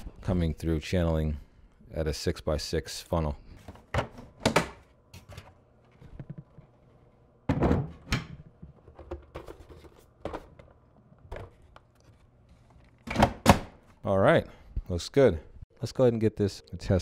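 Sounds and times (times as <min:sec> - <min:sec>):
plastic cover thunks and knocks: 0:07.5 - 0:08.0.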